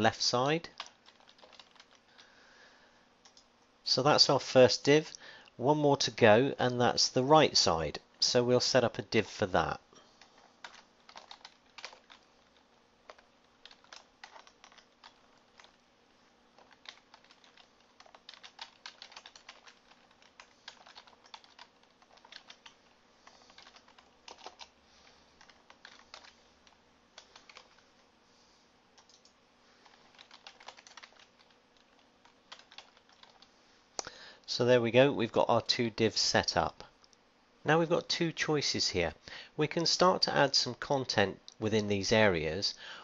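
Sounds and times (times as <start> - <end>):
faint keyboard typing: 0.4 - 2.4, 3.2 - 3.6, 9.6 - 28.1, 28.9 - 34.2.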